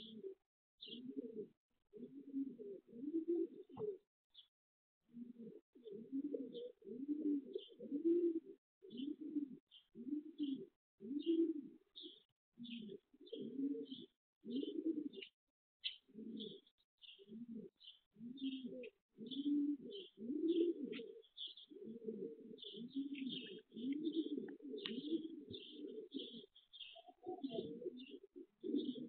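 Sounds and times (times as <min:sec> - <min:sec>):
small birds chirping: 0:00.0 - 0:01.2, 0:03.5 - 0:04.5, 0:07.5 - 0:08.2, 0:08.8 - 0:29.0
pigeons cooing: 0:00.0 - 0:04.0, 0:05.1 - 0:29.0.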